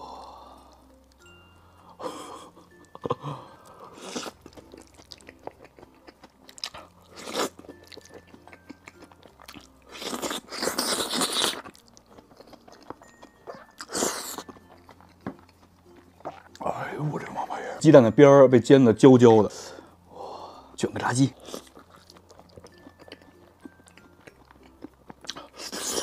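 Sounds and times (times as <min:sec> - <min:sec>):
wet chewing and smacking: 0:02.7 - 0:16.7, 0:21.3 - 0:26.0
noodle slurping: 0:09.9 - 0:11.7.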